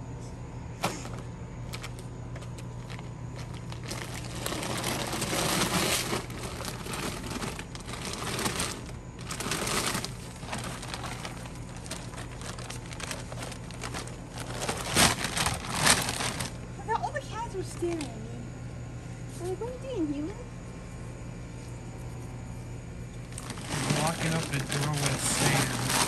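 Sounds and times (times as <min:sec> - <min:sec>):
steady low hum: 0:00.0 - 0:26.0
sandbags rustling: 0:00.8 - 0:16.6, 0:23.3 - 0:26.0.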